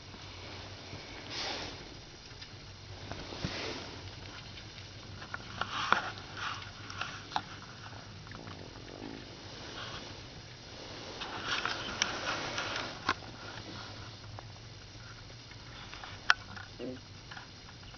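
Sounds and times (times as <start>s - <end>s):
rat sniffing: 0.2s - 2.1s, 2.9s - 14.4s.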